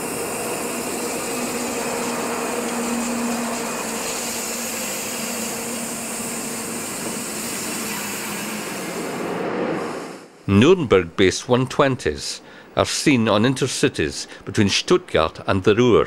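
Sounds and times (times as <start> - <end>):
electric train running: 0.0 - 10.3.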